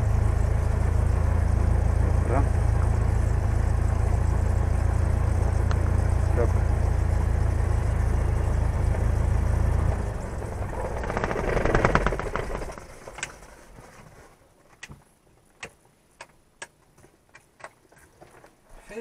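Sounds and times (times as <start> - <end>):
aircraft engine idling and stopping: 0.0 - 14.3.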